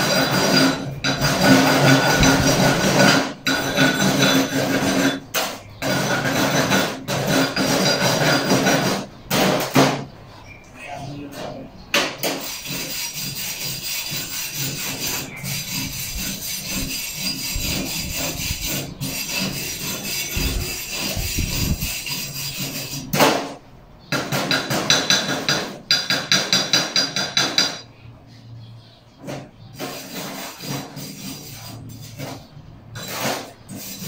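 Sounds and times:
wire brush scrubbing metal: 0.0s - 5.2s, 12.2s - 23.1s, 29.8s - 34.0s.

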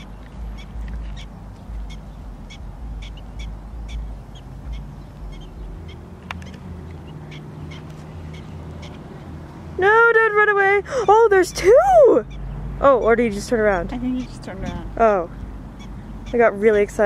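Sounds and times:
prairie dogs barking: 0.0s - 17.0s
camera handling rumble: 0.2s - 1.8s, 6.2s - 7.1s.

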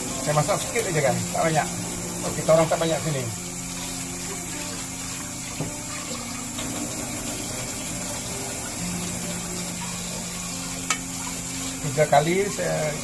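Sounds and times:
rice washed by hand: 0.0s - 13.0s
tap running into pot: 5.5s - 6.7s, 10.8s - 11.1s.

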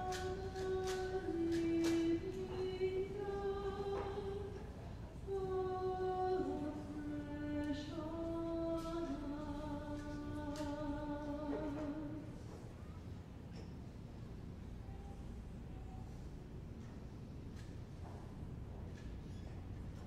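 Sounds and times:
person singing a hymn: 0.0s - 12.5s.

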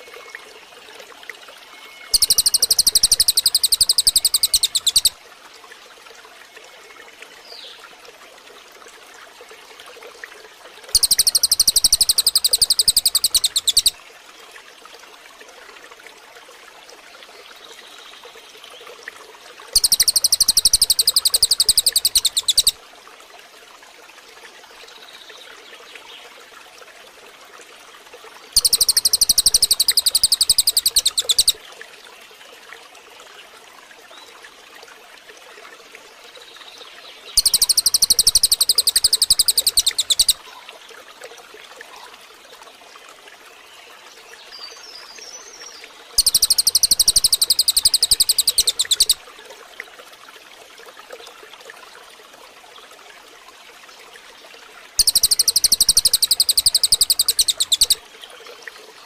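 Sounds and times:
faint trickling water: 0.0s - 59.0s
faint bird chirps: 1.7s - 5.2s, 10.9s - 14.0s, 19.8s - 22.8s, 28.6s - 31.6s, 37.3s - 40.7s, 44.5s - 49.2s, 55.0s - 58.0s
songbird rattling trill: 2.1s - 5.2s, 11.0s - 14.0s, 19.8s - 22.8s, 28.6s - 31.6s, 37.4s - 40.4s, 46.2s - 49.2s, 55.0s - 58.0s.

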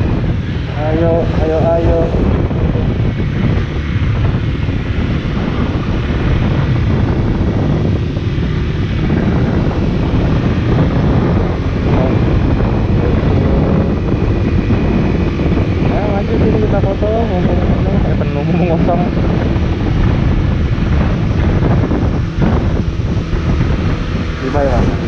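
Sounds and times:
motorcycle engine running: 0.0s - 25.0s
wind rushing over microphone: 0.0s - 25.0s.

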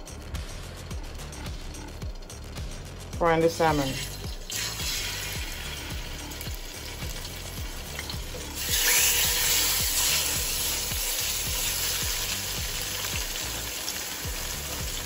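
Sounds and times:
fish sizzling in hot oil: 3.9s - 15.0s.

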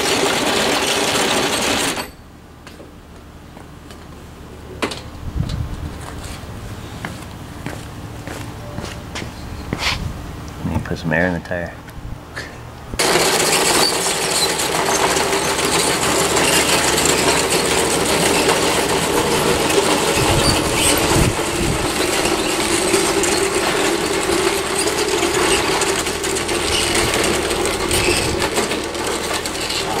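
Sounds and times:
tracks clattering on concrete: 7.0s - 10.0s, 13.0s - 30.0s
toy bulldozer motor hum: 13.0s - 30.0s.

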